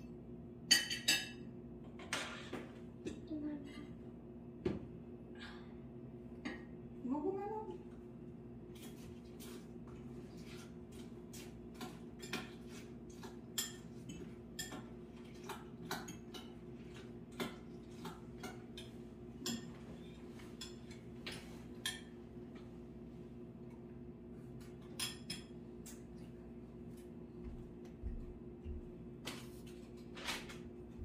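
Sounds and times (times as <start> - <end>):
dishes and utensils clinking: 0.7 - 3.2, 10.4 - 22.2, 24.6 - 26.0.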